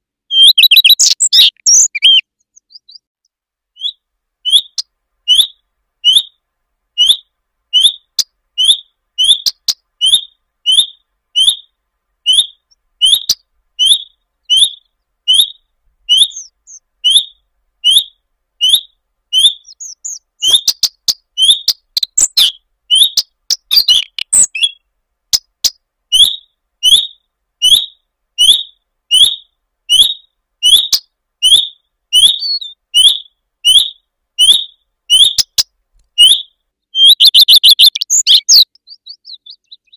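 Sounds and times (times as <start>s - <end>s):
bird song jumble of notes: 0.0s - 6.4s, 7.0s - 39.9s
bird whistled calls: 0.3s - 3.1s, 3.8s - 6.4s, 7.0s - 11.7s, 12.3s - 24.8s, 26.1s - 35.6s, 36.2s - 39.9s.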